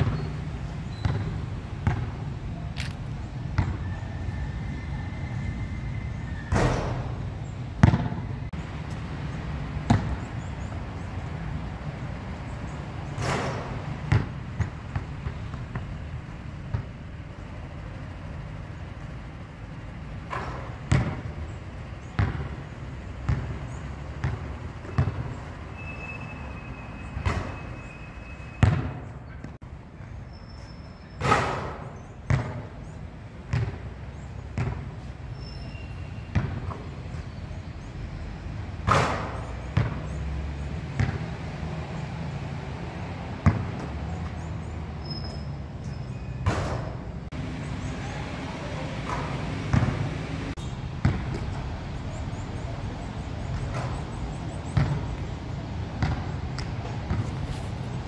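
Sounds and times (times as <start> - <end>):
basketball bouncing: 0.0 - 2.2, 2.8 - 3.9, 7.8 - 9.0, 9.8 - 10.7, 13.1 - 17.1, 20.3 - 21.3, 22.1 - 22.6, 23.2 - 25.4, 28.6 - 29.6, 31.2 - 32.7, 33.5 - 33.9, 34.6 - 35.0, 36.3 - 36.9, 38.9 - 40.2, 40.9 - 41.3, 43.4 - 44.2, 49.0 - 50.2, 51.0 - 51.6, 54.7 - 55.3, 56.0 - 57.4
ball striking rim and backboard: 0.9 - 2.2, 3.5 - 3.9, 7.8 - 8.3, 9.9 - 10.3, 13.1 - 16.0, 20.3 - 21.3, 22.1 - 22.6, 24.2 - 25.3, 28.6 - 29.0, 31.2 - 32.7, 33.5 - 33.8, 34.6 - 34.9, 38.8 - 40.1, 40.9 - 41.3, 46.4 - 47.0, 49.0 - 51.6, 54.8 - 55.2, 56.0 - 57.3.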